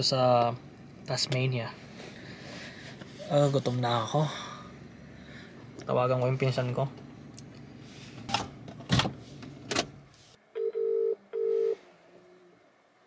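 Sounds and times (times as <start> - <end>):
phone ringback tone: 10.6 - 11.8.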